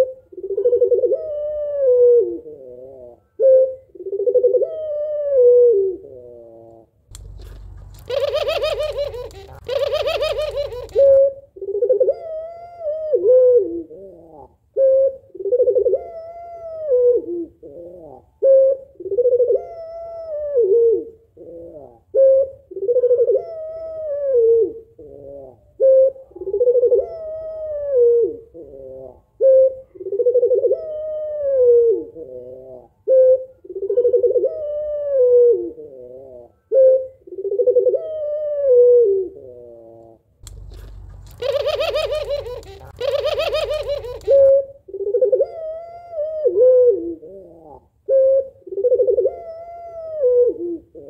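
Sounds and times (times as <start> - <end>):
dove cooing: 0.0 - 51.0
rough rolling call: 7.1 - 11.2, 40.4 - 44.5.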